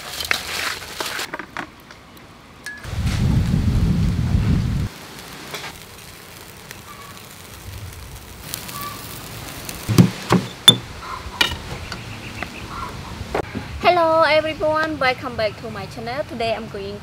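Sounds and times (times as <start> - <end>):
meat sizzling on a grill: 2.9 - 11.0
sharp knocks: 9.9 - 10.8.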